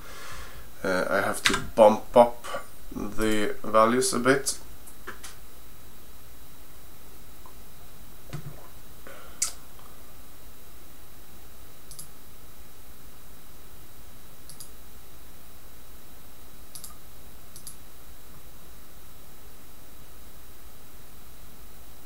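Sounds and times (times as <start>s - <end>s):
steady hiss: 0.0s - 10.8s
computer mouse clicks: 11.9s - 12.1s, 14.5s - 14.7s, 16.7s - 17.0s, 17.6s - 17.8s.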